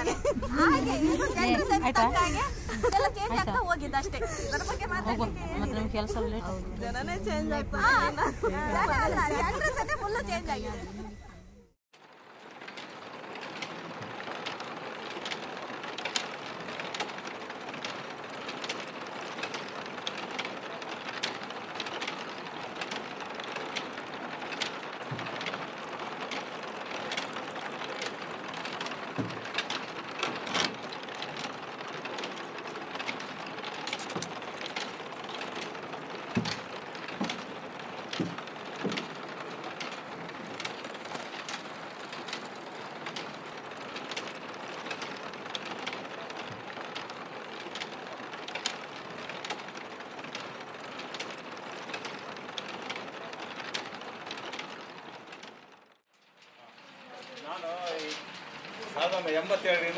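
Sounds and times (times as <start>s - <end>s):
factory machinery clattering: 12.2s - 59.9s.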